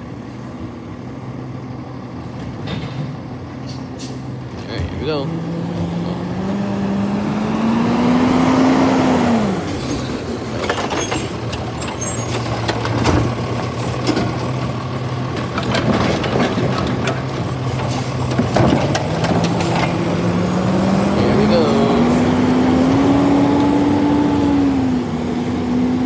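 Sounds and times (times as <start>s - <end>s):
truck diesel engine: 0.0s - 26.0s
cart knocking and clattering: 10.2s - 20.2s.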